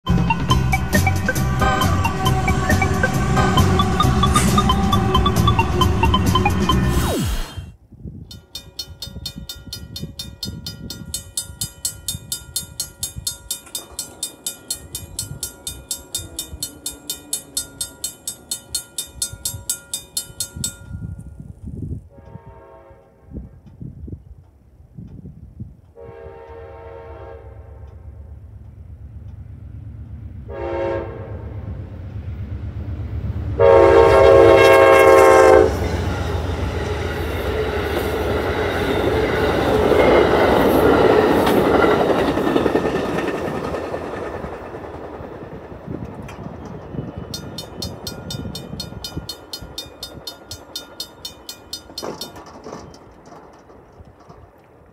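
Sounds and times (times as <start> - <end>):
crossing bell ringing: 0.1 - 7.0, 8.3 - 21.6, 46.3 - 53.1
train rumbling and clacking: 0.1 - 7.4, 8.1 - 54.9
locomotive horn blasts: 1.2 - 6.8, 22.1 - 23.6, 26.0 - 28.0, 30.5 - 31.6, 33.6 - 36.5.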